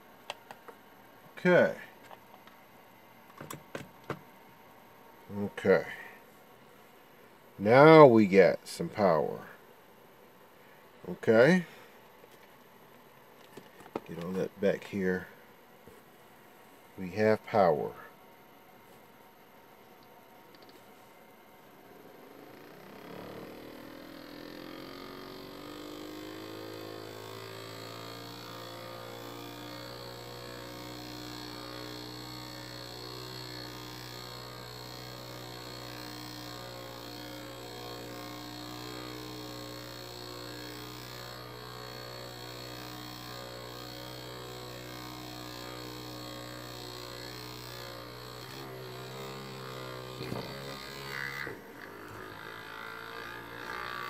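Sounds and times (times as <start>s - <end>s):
electric motor humming: 21.9s - 54.0s.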